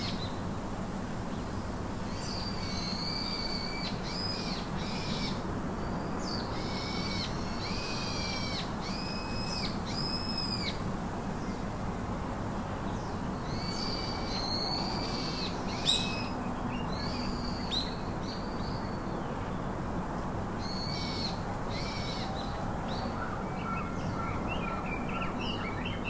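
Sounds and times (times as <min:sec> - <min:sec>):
small birds chirping: 0:12.8 - 0:19.7.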